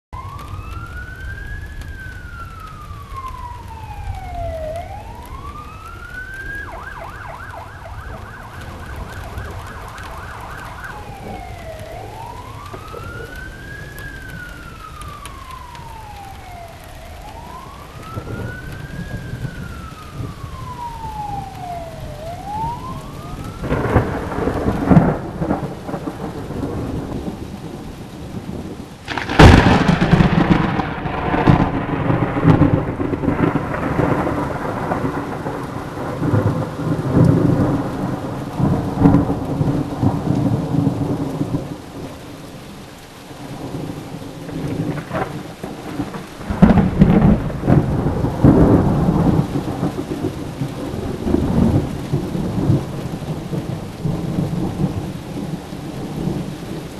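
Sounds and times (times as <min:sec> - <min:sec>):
steady rain: 0:00.1 - 0:56.9
emergency siren wailing: 0:00.2 - 0:56.9
rolling thunder: 0:00.2 - 0:56.9.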